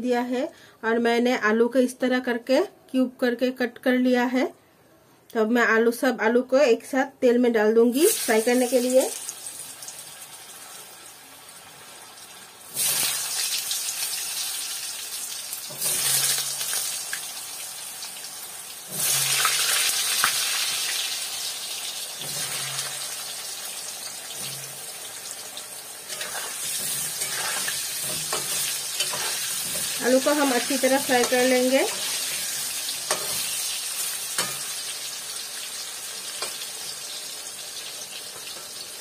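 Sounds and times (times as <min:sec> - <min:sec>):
potatoes sizzling in hot oil: 0:07.9 - 0:39.0
spatula stirring in pan: 0:26.0 - 0:35.0.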